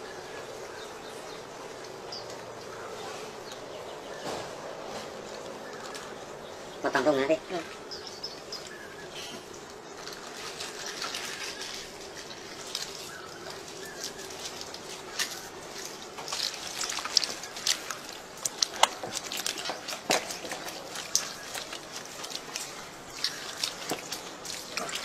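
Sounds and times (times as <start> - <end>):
wet squelching and dripping: 7.6 - 25.0
sharp wet slaps and clicks: 12.6 - 25.0.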